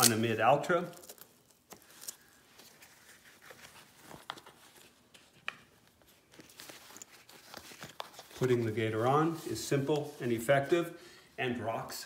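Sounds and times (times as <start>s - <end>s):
fabric rustling: 1.4s - 10.8s.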